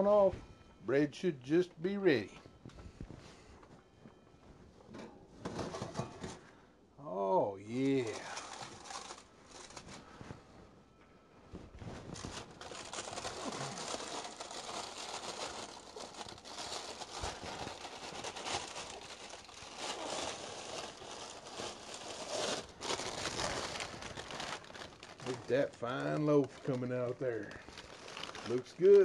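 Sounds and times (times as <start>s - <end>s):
parchment paper crinkling: 7.8s - 10.2s, 12.1s - 29.0s.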